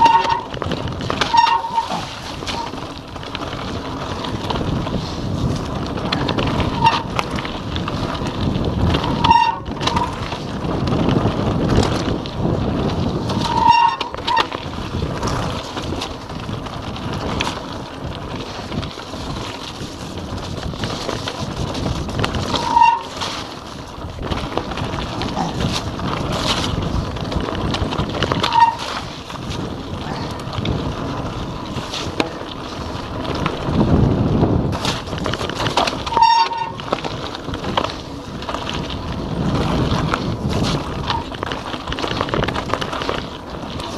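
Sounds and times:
short squeaks: 0.0 - 0.6, 1.2 - 2.8, 22.5 - 23.4, 36.1 - 36.8
bike rattling: 0.0 - 43.9
tyres rumbling on gravel: 0.0 - 43.9
wind rushing over microphone: 0.0 - 43.9.

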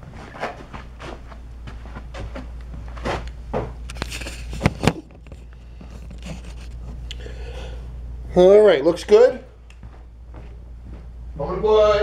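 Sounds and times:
camera handling rustles and knocks: 3.0 - 7.0.

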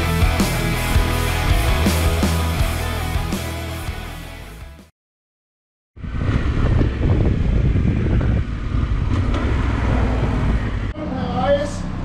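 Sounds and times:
wind buffeting microphone: 6.0 - 10.9.

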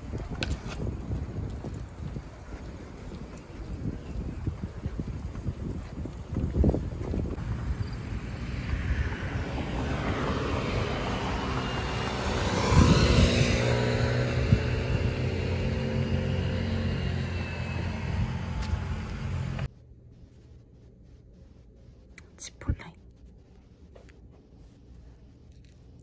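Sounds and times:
wind rumbling on microphone: 0.0 - 19.7
traffic ambience: 0.0 - 26.0
motor vehicle passing: 6.6 - 19.7.

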